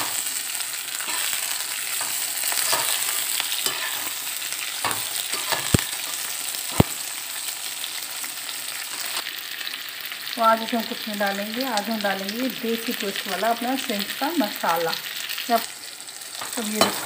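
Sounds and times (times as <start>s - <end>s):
vegetables sizzling in hot oil: 0.0s - 17.0s
metal spatula scraping pan: 1.0s - 4.2s, 4.8s - 6.2s, 16.6s - 17.0s.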